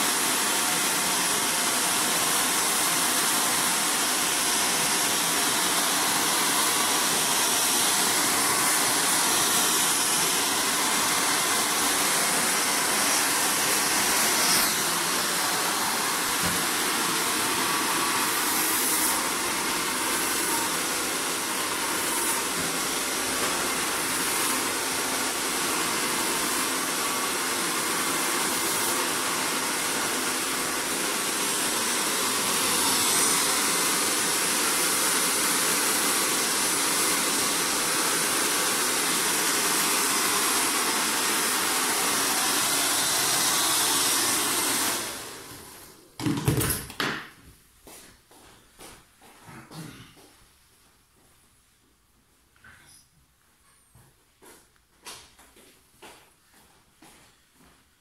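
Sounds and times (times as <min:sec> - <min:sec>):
hair dryer blowing: 0:00.0 - 0:46.2.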